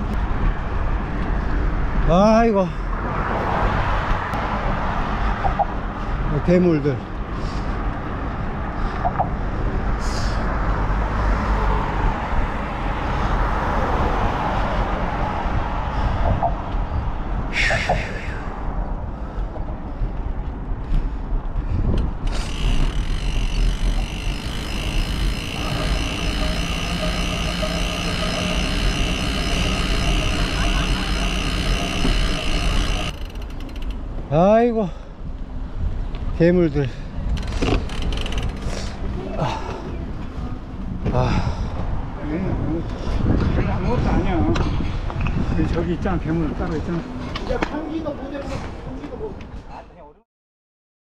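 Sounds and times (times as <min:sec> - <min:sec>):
bicycle tyre road noise: 0:00.0 - 0:49.7
wind buffeting microphone: 0:11.8 - 0:30.2, 0:37.2 - 0:47.9
freewheel ratcheting buzz: 0:22.2 - 0:34.2, 0:37.3 - 0:39.0.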